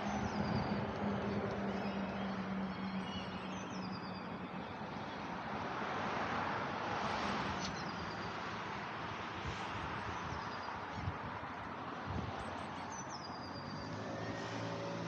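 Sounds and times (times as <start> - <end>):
vehicle passing on road: 0.0 - 15.0
bird chirps: 1.6 - 4.7.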